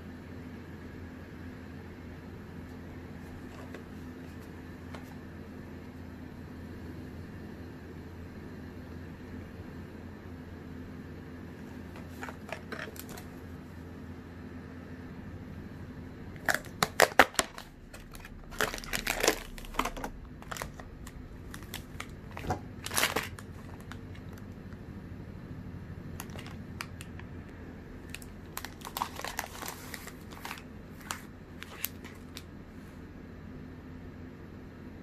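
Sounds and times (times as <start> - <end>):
plastic packaging crinkling: 11.9 - 13.4, 16.4 - 24.5, 26.2 - 27.3, 28.0 - 32.5.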